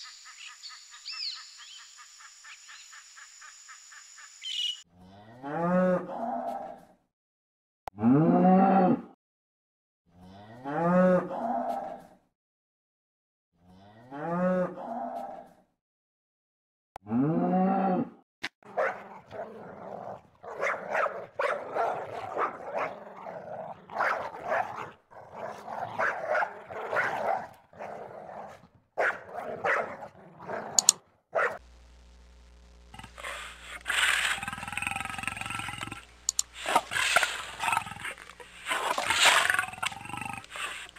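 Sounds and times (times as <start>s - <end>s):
dog barking: 18.7s - 31.6s
tiger growling: 18.7s - 31.6s, 32.9s - 40.9s
low steady hum: 31.6s - 40.9s.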